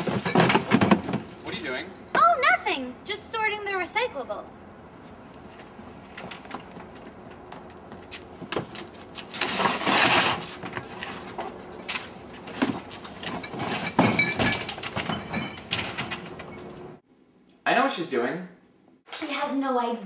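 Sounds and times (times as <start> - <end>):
plastic bin knocking and scraping: 0.0 - 1.5
plastic bin rustle and clatter: 0.0 - 1.8, 8.4 - 11.5, 12.4 - 16.5.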